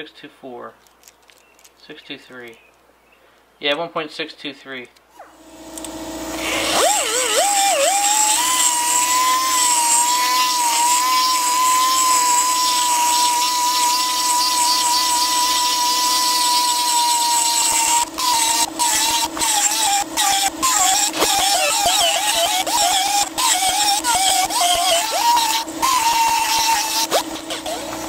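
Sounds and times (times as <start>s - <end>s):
rotary tool whining: 5.2s - 28.0s
grinding bit clicking under load: 6.6s - 28.0s.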